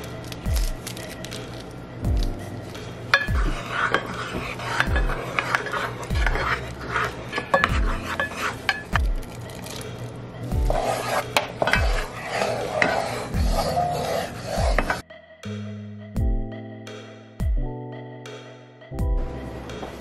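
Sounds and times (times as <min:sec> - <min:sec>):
music with thumping beat: 0:02.0 - 0:03.6, 0:06.1 - 0:06.4, 0:07.7 - 0:08.0, 0:08.9 - 0:09.3, 0:10.5 - 0:10.8, 0:11.8 - 0:12.1, 0:13.3 - 0:13.7, 0:16.2 - 0:20.0
wooden spoon scraping saucepan: 0:02.2 - 0:15.0.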